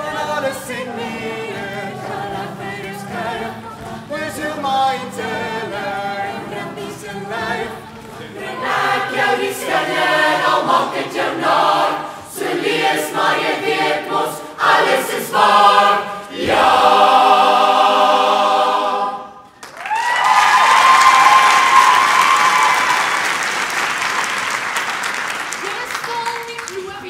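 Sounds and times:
choir singing: 0.0s - 19.5s
audience cheering: 19.6s - 25.9s
audience applause: 19.6s - 27.0s.

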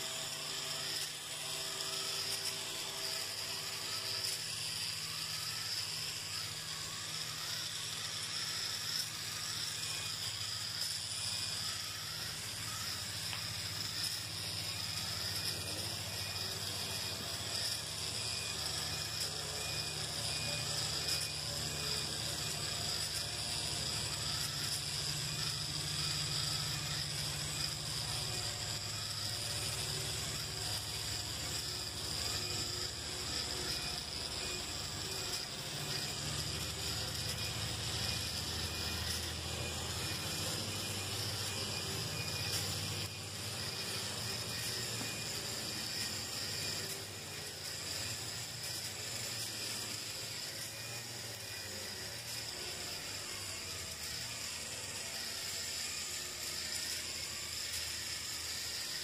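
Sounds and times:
toy robot gear motor running: 0.0s - 59.0s.

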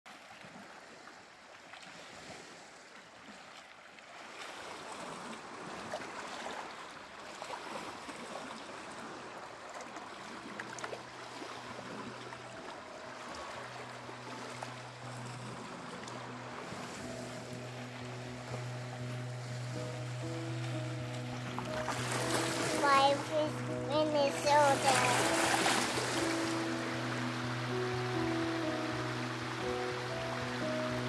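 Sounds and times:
wind: 0.1s - 31.0s
waves washing against shore: 4.2s - 31.0s
low steady hum: 11.2s - 31.0s.

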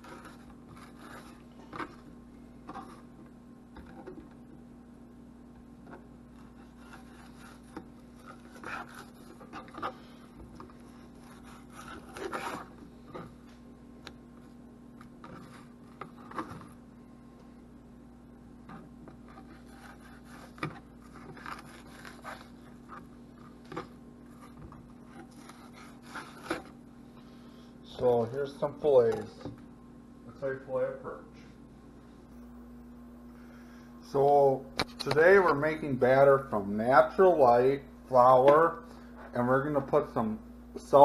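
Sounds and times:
knife scraping cutting board: 0.0s - 2.1s, 6.3s - 13.4s, 18.7s - 26.8s
steady low hum: 0.0s - 41.0s.

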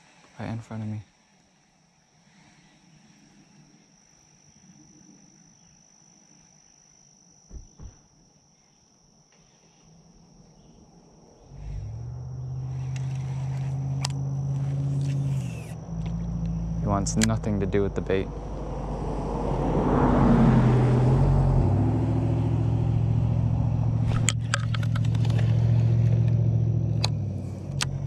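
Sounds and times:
high-pitched insect call: 0.0s - 28.0s
low thumps: 7.5s - 8.1s, 11.6s - 28.0s
low engine drone: 10.6s - 28.0s.

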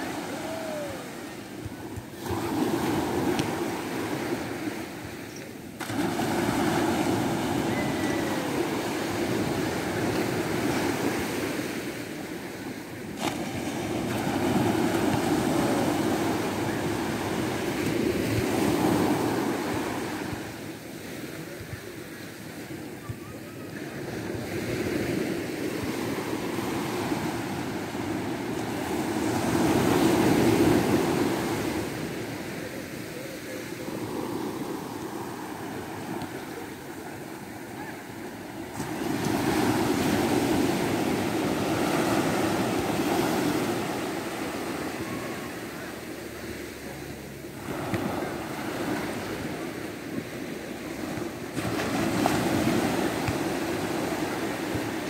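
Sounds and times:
waves breaking on beach: 0.0s - 55.0s.

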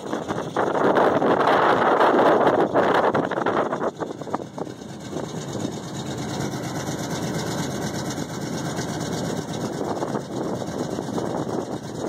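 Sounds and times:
pickup truck engines idling: 0.0s - 12.0s.

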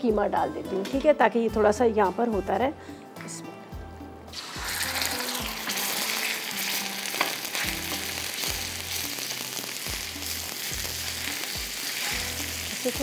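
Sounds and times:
meat sizzling in hot oil: 4.3s - 13.0s
spatula scraping griddle: 10.0s - 12.6s.

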